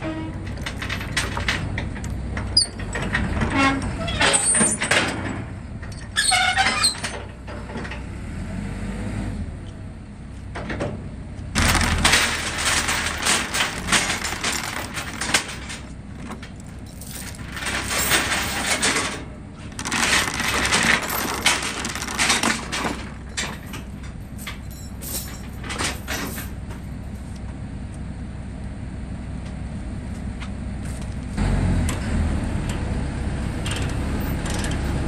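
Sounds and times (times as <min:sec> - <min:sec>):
metal clanks: 0:11.6 - 0:26.9
steel chains rattling and clinking: 0:11.6 - 0:27.2.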